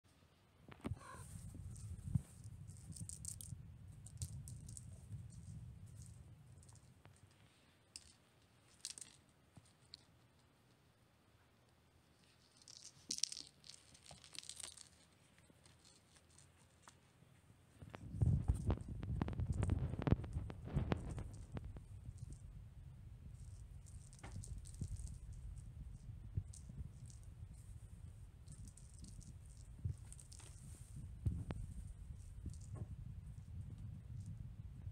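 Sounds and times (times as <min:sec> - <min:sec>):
low steady rumble: 0:00.9 - 0:07.8, 0:17.4 - 0:34.9.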